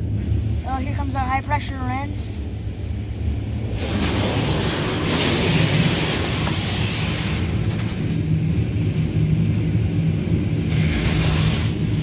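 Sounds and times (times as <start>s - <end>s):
low hum and rumble: 0.0s - 12.0s
car wash spray hissing: 3.7s - 9.2s, 10.7s - 12.0s.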